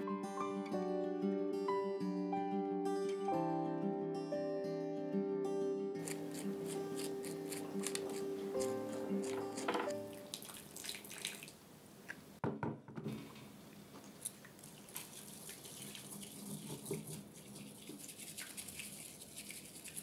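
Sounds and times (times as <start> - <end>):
bamboo whisk swishing in bowl: 14.9 - 20.0.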